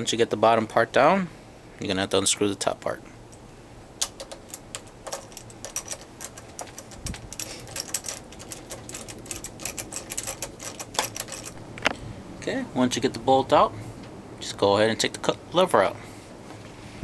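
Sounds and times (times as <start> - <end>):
socket ratchet clicking: 4.0 - 11.6.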